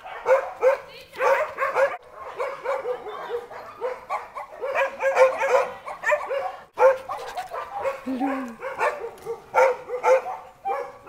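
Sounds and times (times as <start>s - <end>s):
dogs barking: 0.0s - 11.0s.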